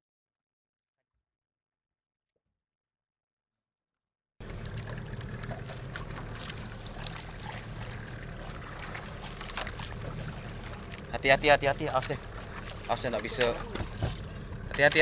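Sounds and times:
low boat rumble: 0:04.4 - 0:15.0
water trickling: 0:04.4 - 0:15.0.

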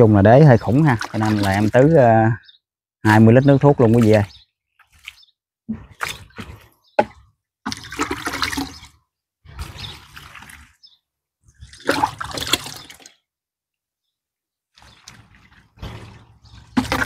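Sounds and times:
liquid splashing onto soil: 0:00.6 - 0:02.1, 0:03.8 - 0:10.8, 0:11.6 - 0:13.2, 0:14.8 - 0:17.0.

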